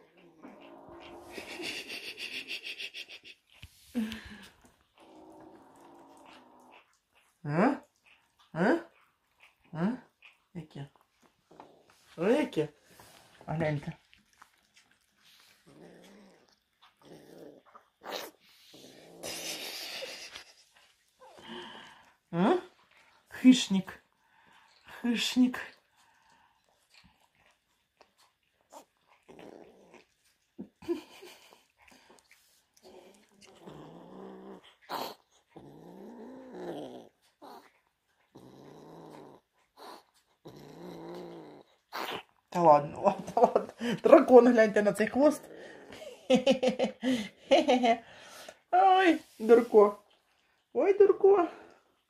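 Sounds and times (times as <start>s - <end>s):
kitten growling low: 0.0s - 7.0s, 14.9s - 20.6s, 28.7s - 42.4s.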